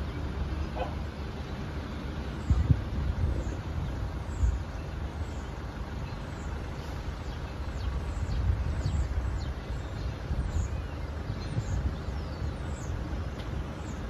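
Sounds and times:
birds chirping: 0.0 - 14.0
low outdoor rumble: 0.0 - 14.0.

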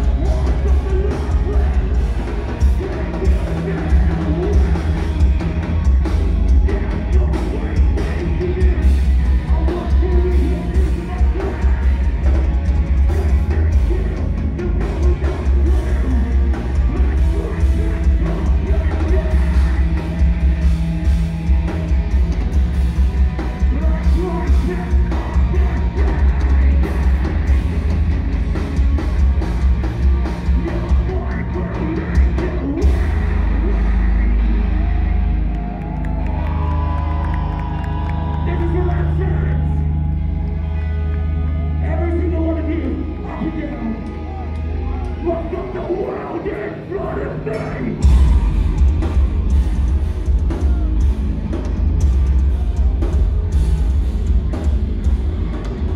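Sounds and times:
live rock band playing: 0.0 - 55.9
singer singing and yelling: 0.0 - 55.9
deep bass boom: 47.6 - 55.9.

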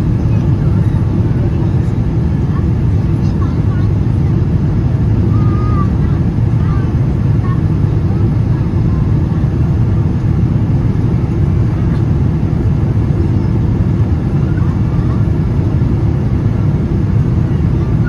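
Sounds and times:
airliner cabin engine rumble: 0.0 - 18.0.

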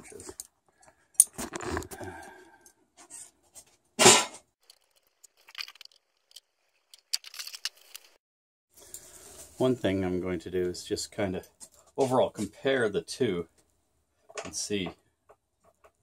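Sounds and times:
wrenches and metal parts clinking: 4.6 - 8.2.

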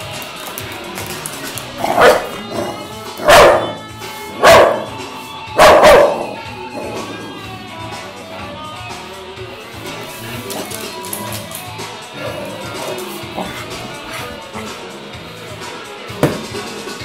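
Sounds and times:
guitar music: 0.0 - 17.0
dog barking: 1.8 - 6.4.

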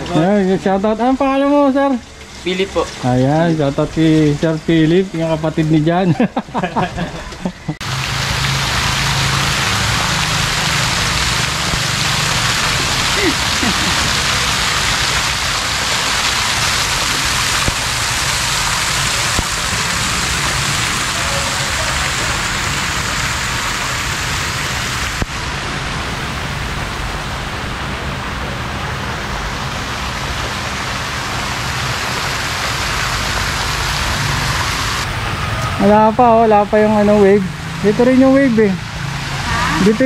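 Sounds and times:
water splashing: 1.5 - 40.0.

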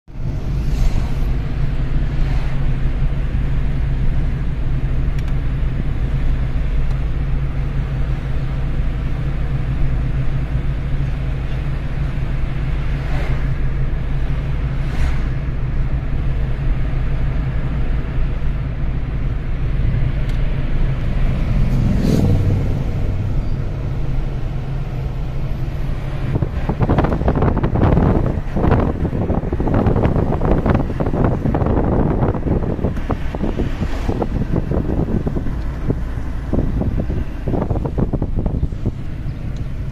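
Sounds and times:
engine and road rumble: 0.0 - 39.9
wind buffeting microphone: 19.7 - 39.9.

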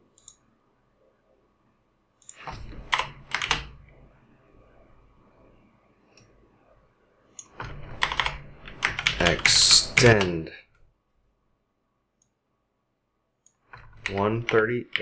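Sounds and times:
computer keyboard keystrokes: 2.2 - 3.7, 7.4 - 10.3.

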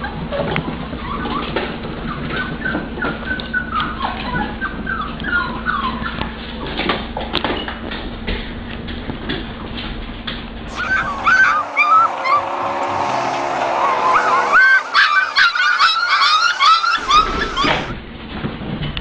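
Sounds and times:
puppies whimpering and yipping: 0.0 - 6.9, 10.7 - 18.0
steady low hum: 10.7 - 18.0.

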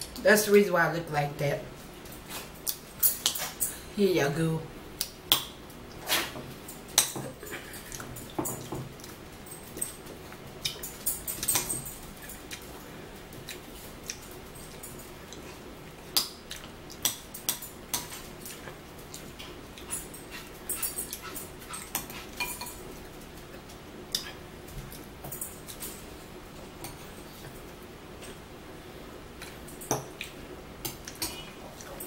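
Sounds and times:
chewing and mouth noises: 2.1 - 3.8, 7.3 - 25.8.

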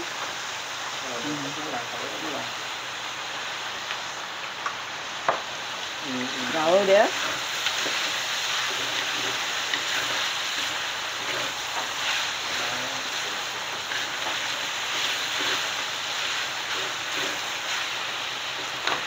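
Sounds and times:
chicken sizzling in a pan: 0.0 - 19.0
spatula stirring: 6.6 - 19.0.

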